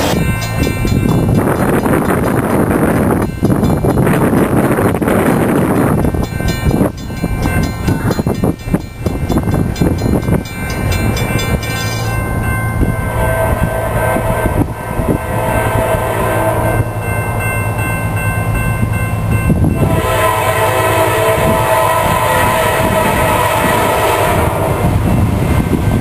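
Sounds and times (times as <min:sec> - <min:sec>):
diesel locomotives running: 0:00.0 - 0:26.0
wind buffeting microphone: 0:00.0 - 0:26.0
train horn blasts: 0:12.8 - 0:17.1, 0:19.7 - 0:25.4.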